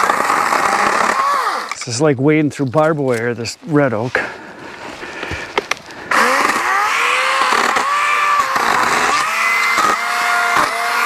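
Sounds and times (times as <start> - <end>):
electric chainsaw cutting wood: 0.0 - 1.8, 5.3 - 11.0.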